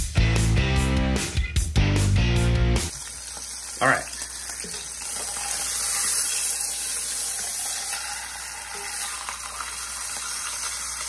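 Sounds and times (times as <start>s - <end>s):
meat sizzling in hot oil: 2.9s - 11.0s.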